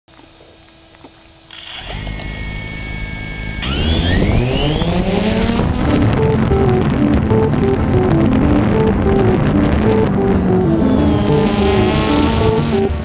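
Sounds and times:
drone motors whining: 0:01.7 - 0:06.4
background music: 0:05.5 - 0:13.0.

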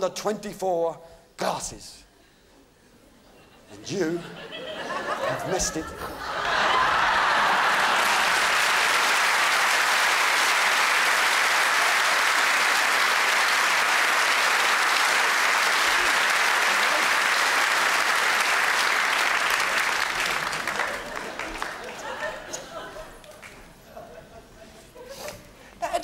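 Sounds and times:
audience applauding: 0:06.2 - 0:23.6.

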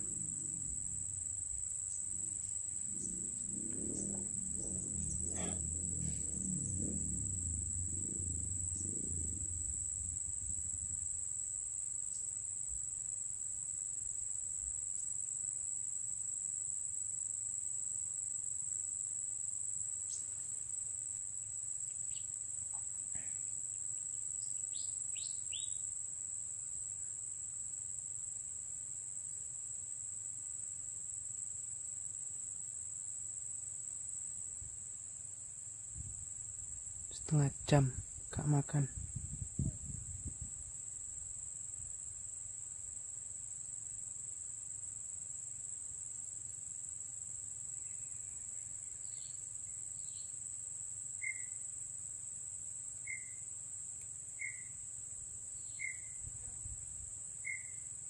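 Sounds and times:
low rumble: 0:00.0 - 0:12.3, 0:36.0 - 0:40.7
insects trilling: 0:00.0 - 0:58.0.

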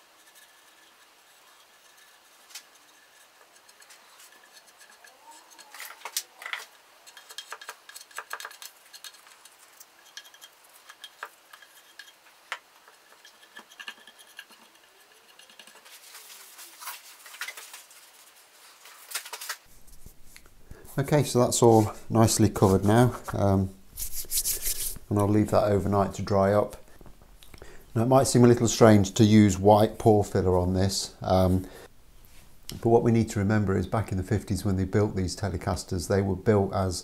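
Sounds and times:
soft scraping of spreader: 0:00.0 - 0:18.9.

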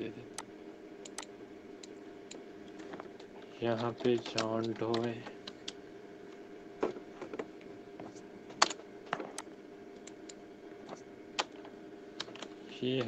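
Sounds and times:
faint steady hum: 0:00.0 - 0:13.0
keyboard typing: 0:01.0 - 0:01.3, 0:02.3 - 0:05.8.

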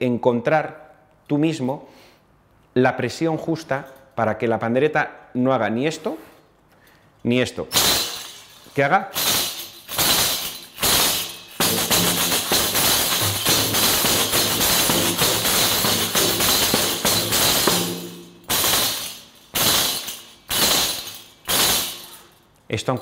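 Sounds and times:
tambourine jingles rattling roll: 0:07.7 - 0:22.6.

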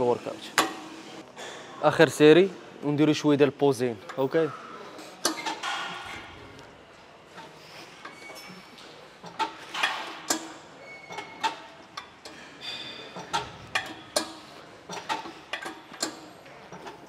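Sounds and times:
gym weights clicking and clanking: 0:07.3 - 0:17.0.

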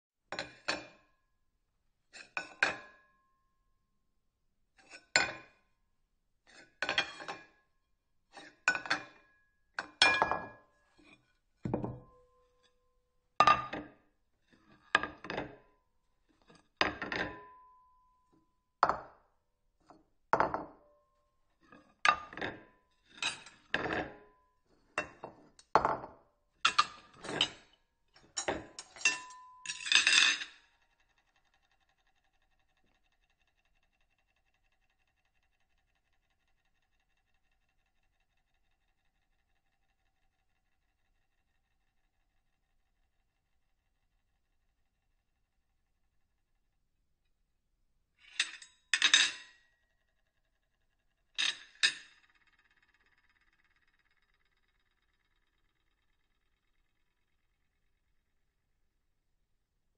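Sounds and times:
ceramic plates clinking: 0:28.2 - 0:30.4.

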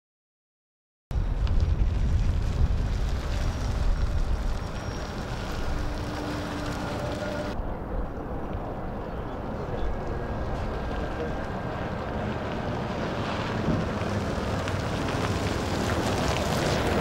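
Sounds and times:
road noise: 0:01.1 - 0:17.0
wind on microphone: 0:01.2 - 0:06.5.

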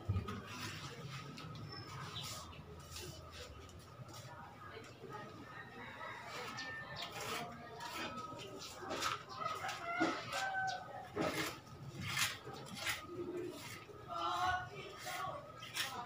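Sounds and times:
cement plastering scrapes and taps: 0:07.0 - 0:13.9.

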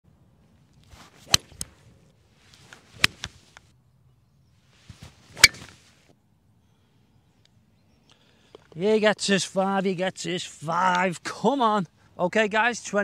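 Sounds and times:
golf club swishing: 0:00.8 - 0:01.8, 0:02.4 - 0:03.6, 0:04.8 - 0:06.0
golf club striking ball: 0:05.4 - 0:05.7.

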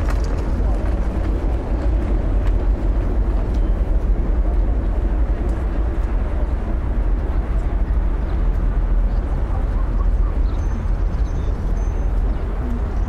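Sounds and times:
distant traffic rumble: 0:00.0 - 0:13.0.

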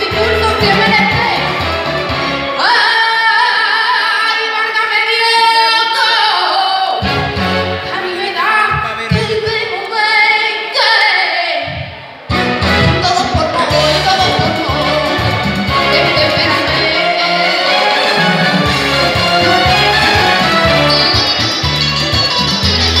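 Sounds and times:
woman singing with vibrato: 0:00.0 - 0:01.7, 0:02.5 - 0:07.0, 0:12.8 - 0:18.6
musical accompaniment with bass: 0:00.0 - 0:03.5, 0:06.9 - 0:09.6, 0:11.7 - 0:23.0.

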